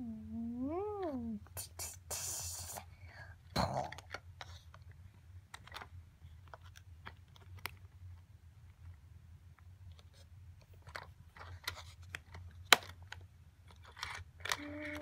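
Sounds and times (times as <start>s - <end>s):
low steady hum: 0.0s - 15.0s
plastic toy clicks and taps: 13.8s - 15.0s.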